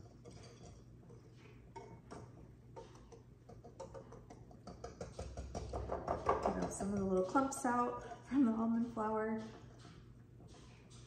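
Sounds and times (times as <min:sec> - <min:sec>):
whisk clicking against bowl: 0:01.7 - 0:08.2.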